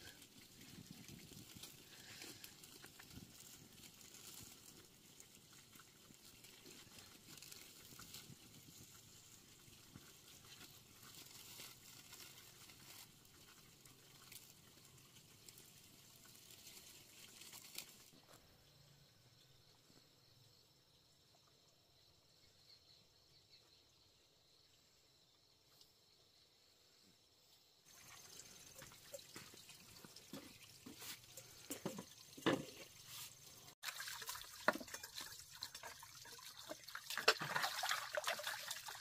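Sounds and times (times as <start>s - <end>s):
faint crackling and rustling: 0.0s - 18.4s, 27.8s - 33.8s.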